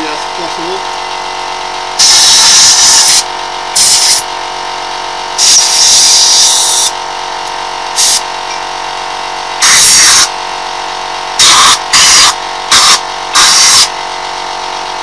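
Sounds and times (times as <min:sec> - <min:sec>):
rotary tool grinding metal: 0:02.0 - 0:03.2, 0:03.8 - 0:04.3.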